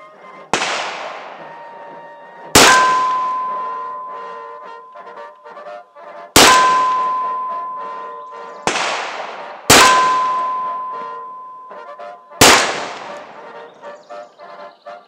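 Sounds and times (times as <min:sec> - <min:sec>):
revolver shots echoing: 0:02.6 - 0:04.2, 0:06.4 - 0:11.3.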